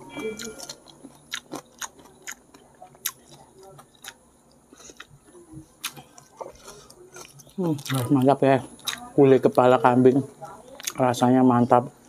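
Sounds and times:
chewing and lip smacks: 0:00.4 - 0:09.1.

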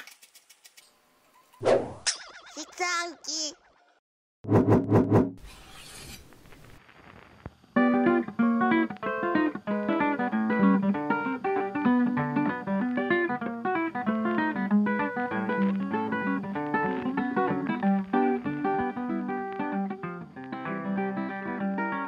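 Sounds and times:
plucked acoustic guitar tune: 0:07.8 - 0:22.0.

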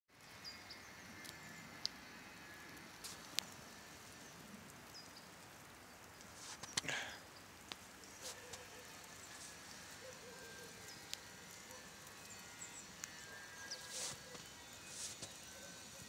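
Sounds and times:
sharp ticks: 0:01.2 - 0:06.9, 0:08.9 - 0:15.5
rustle with clicks: 0:04.7 - 0:10.0.

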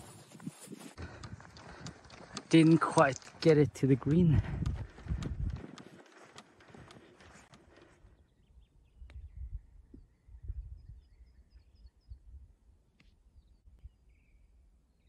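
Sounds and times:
small birds chirping: 0:01.0 - 0:15.0
wind on microphone: 0:04.0 - 0:06.0, 0:08.8 - 0:12.6.

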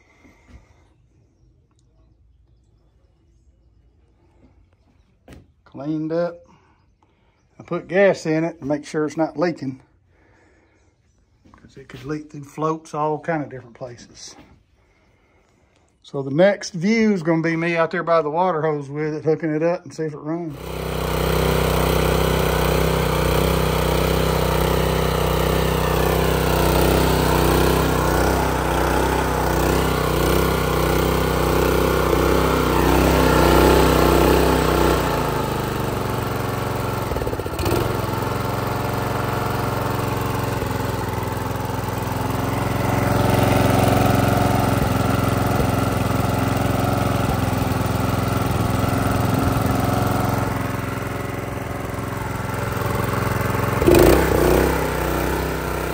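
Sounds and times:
small engine running: 0:20.4 - 0:55.9.

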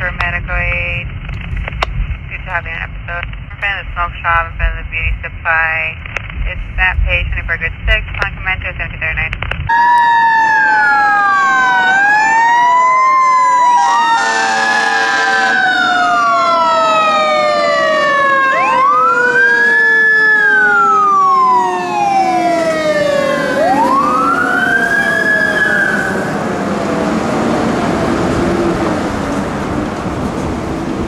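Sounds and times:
fire engine siren wailing: 0:09.7 - 0:31.0
fire engine horn blast: 0:13.6 - 0:19.8.

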